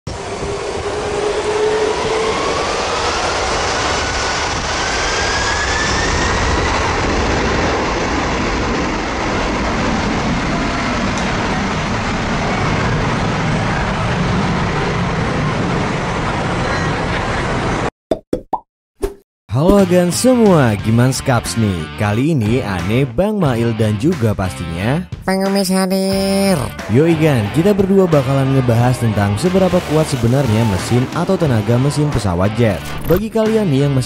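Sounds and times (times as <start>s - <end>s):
turbine whine rising in pitch: 0.1s - 17.8s
jet engines roaring: 0.1s - 17.9s, 26.6s - 34.0s.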